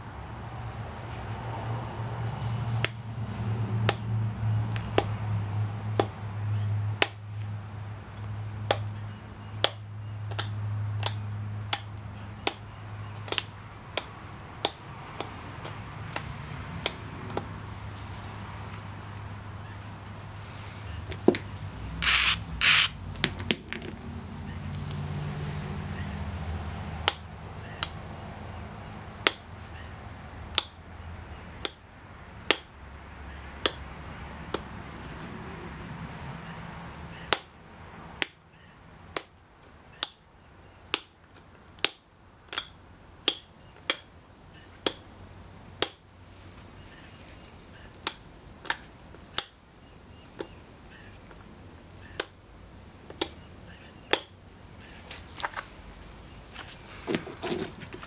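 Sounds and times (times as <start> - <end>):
stone flakes snapping with clicks: 13.2 - 15.3.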